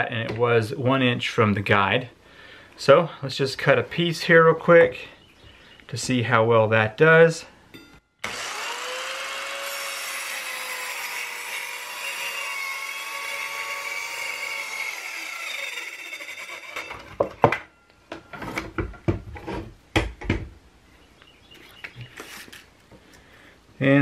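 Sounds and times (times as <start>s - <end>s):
circular saw whining through board: 8.2s - 17.3s
wooden knocks and clatters: 17.0s - 20.5s.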